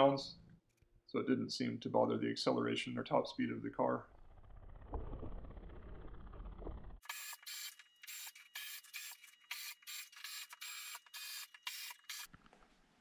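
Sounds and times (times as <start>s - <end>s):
cordless drill driving screws: 7.1s - 12.3s.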